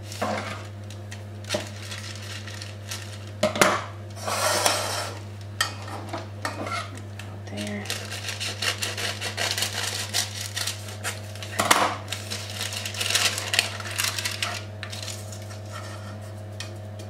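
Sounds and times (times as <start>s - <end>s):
baking paper crinkling: 0.0s - 3.5s, 7.7s - 17.0s
steady low hum: 0.0s - 17.0s.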